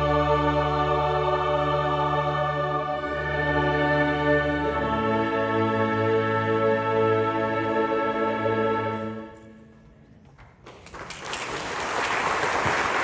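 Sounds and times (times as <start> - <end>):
audience applause: 10.6 - 13.0.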